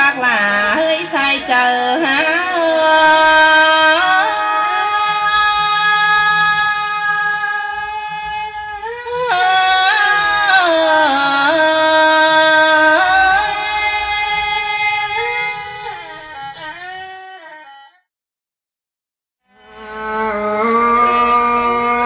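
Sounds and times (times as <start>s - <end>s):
woman singing long sliding notes: 0.0s - 7.8s, 9.1s - 15.6s, 19.7s - 22.0s.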